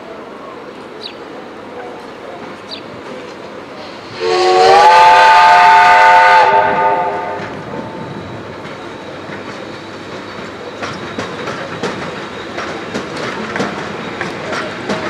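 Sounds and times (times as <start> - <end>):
steam locomotive whistle: 4.0 - 8.3.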